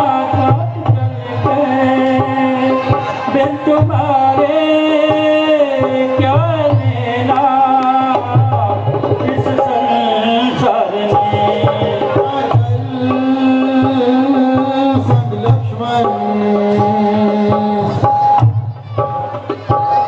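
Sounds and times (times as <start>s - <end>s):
hand drum rhythm: 11.1s - 20.0s.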